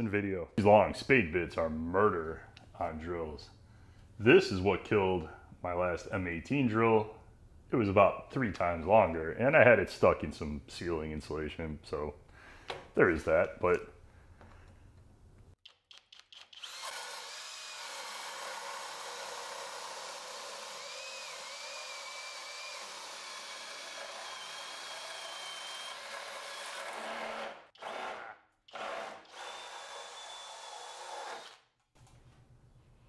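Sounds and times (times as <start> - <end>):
cordless drill motor whine: 16.6 - 26.0.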